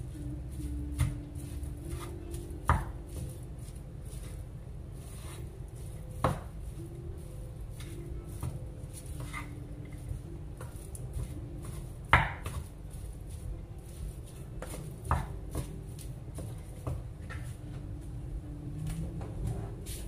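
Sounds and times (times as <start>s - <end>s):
wooden spatula scraping pan: 5.0s - 6.4s, 7.7s - 14.9s.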